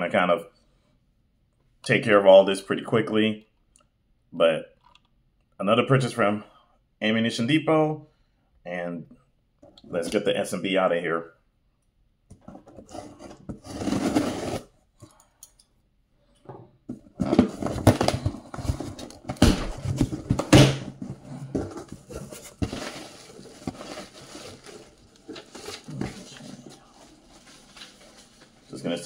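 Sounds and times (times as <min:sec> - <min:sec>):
cardboard rustling and tearing: 0:12.8 - 0:14.7, 0:17.2 - 0:29.0.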